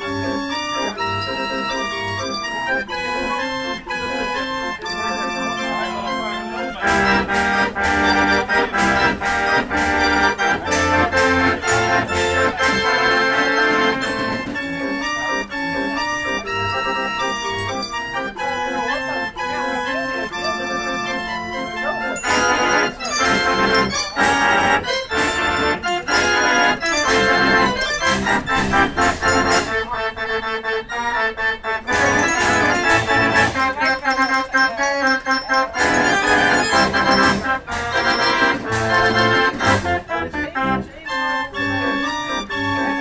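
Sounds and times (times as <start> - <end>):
fairground organ playing a tune: 0.0 - 43.0
percussion strokes: 4.8 - 15.3, 20.4 - 30.0, 31.9 - 40.2.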